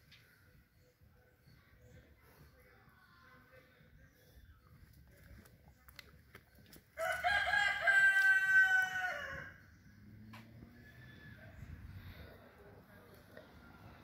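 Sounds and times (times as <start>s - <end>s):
rooster crowing: 7.0s - 9.6s.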